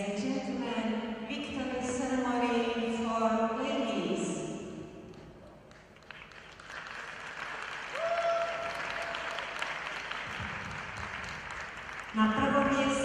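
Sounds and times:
crowd applauding: 5.1 - 12.8.

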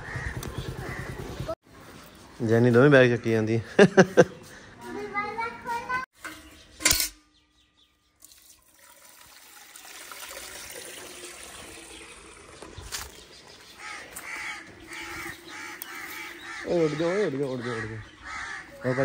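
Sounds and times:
crow cawing: 0.0 - 1.3, 13.8 - 19.0
water pouring into metal bucket: 8.2 - 13.2.

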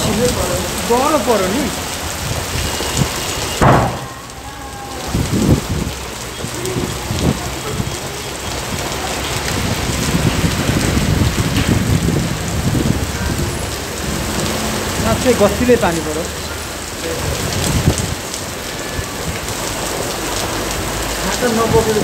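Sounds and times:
heavy rain on pavement: 0.0 - 22.0
low thumps: 3.6 - 4.4.

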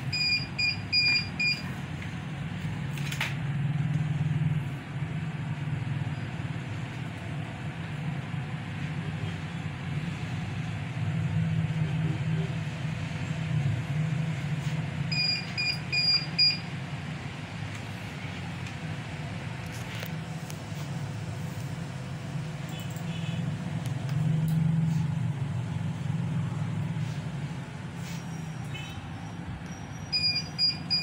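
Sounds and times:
short high electronic beeps: 28.3 - 31.0.

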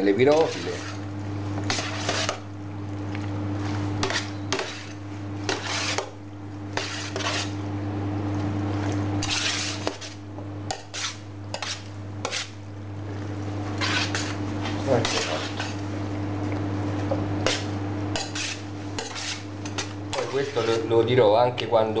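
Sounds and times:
steady low hum: 0.0 - 22.0
pasta rustling against metal tray: 0.2 - 1.0, 9.2 - 10.2, 13.6 - 15.8.

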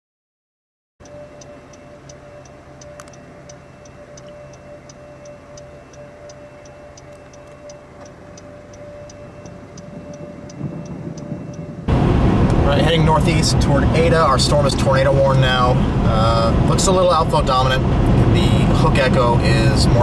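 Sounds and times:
indicator flasher clicking: 1.0 - 11.7
engine and road noise: 1.0 - 20.0.

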